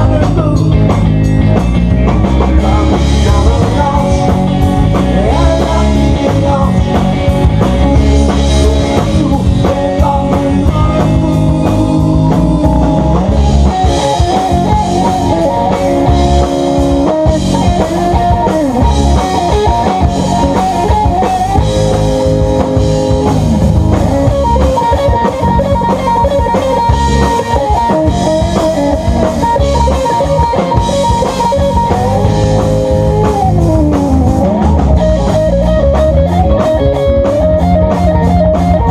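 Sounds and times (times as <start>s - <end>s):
bass guitar: 0.0s - 38.9s
drum kit: 0.0s - 38.9s
electric guitar lead: 0.0s - 38.9s.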